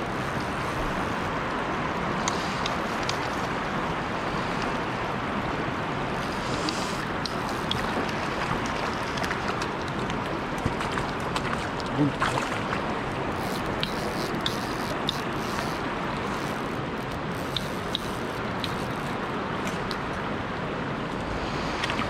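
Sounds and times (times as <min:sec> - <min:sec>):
flowing river: 0:00.0 - 0:22.0
faint high ticks: 0:02.2 - 0:03.5, 0:06.2 - 0:08.2, 0:13.4 - 0:20.1.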